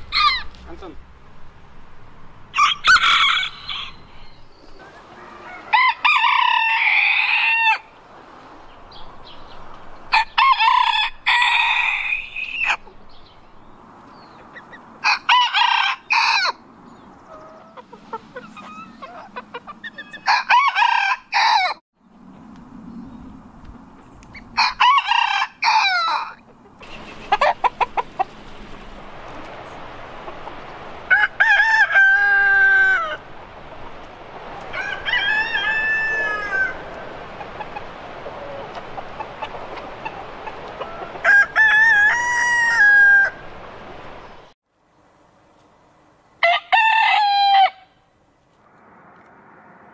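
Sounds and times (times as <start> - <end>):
roosters crowing: 0.0 - 0.7, 2.3 - 13.0, 14.2 - 21.8, 24.4 - 44.3, 46.4 - 48.0
hens clucking: 17.0 - 20.8, 24.3 - 43.7.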